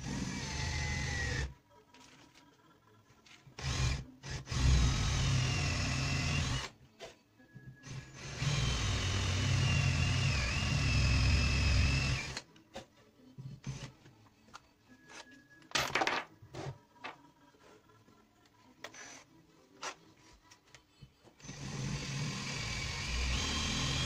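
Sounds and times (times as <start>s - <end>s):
cordless drill whining: 3.6s - 6.7s, 7.8s - 12.4s, 21.4s - 24.0s.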